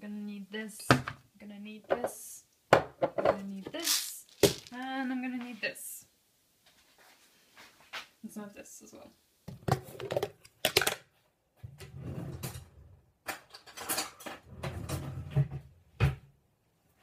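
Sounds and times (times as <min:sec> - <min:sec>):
items handled on kitchen counter: 0:01.9 - 0:05.0.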